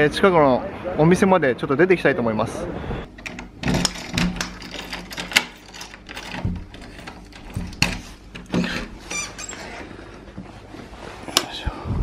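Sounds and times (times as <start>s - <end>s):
key clicking in door lock: 3.2s - 8.5s.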